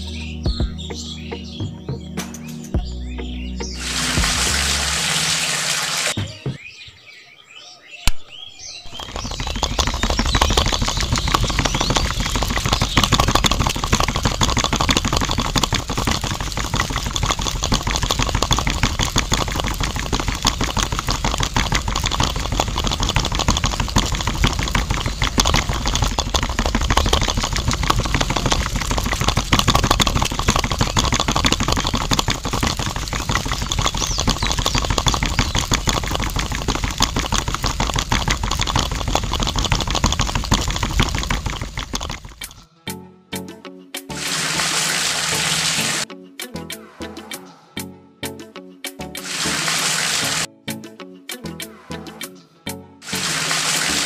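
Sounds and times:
small electric motor running: 0:03.8 - 0:06.1
water pouring into flour: 0:03.8 - 0:06.2, 0:08.9 - 0:42.6, 0:44.1 - 0:46.0, 0:49.2 - 0:50.5, 0:53.0 - 0:54.0.

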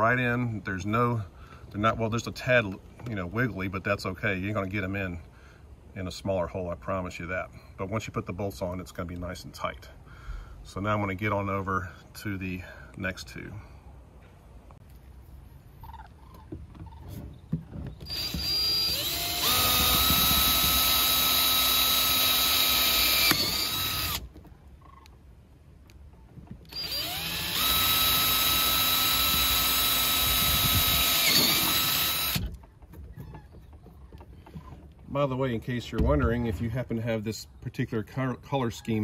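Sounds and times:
cordless drill whining: 0:18.0 - 0:24.3, 0:26.7 - 0:32.6.

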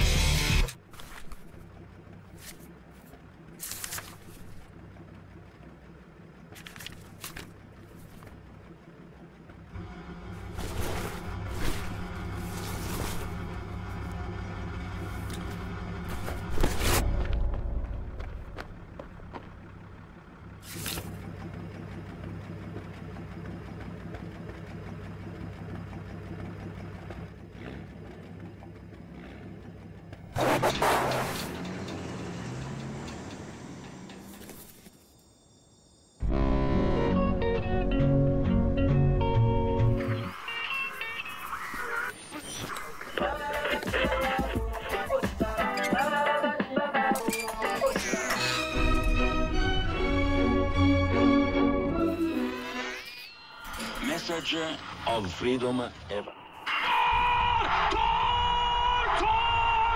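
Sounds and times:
lorry engine idling: 0:00.0 - 0:36.2, 0:37.0 - 0:52.5
paper rustling: 0:00.9 - 0:01.6, 0:02.4 - 0:02.7, 0:03.6 - 0:04.6, 0:06.6 - 0:08.3, 0:34.3 - 0:35.1.

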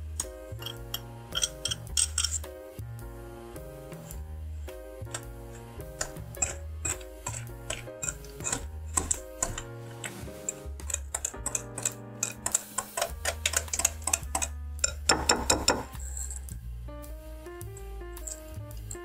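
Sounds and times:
background music: 0:00.0 - 0:19.0
whisk clicking against glass bowl: 0:06.0 - 0:15.9.

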